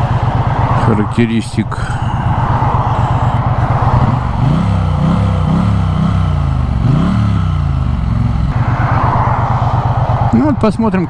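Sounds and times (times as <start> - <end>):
wind noise: 0.0 - 5.7, 8.5 - 11.0
motorcycle engine revving: 0.0 - 11.0.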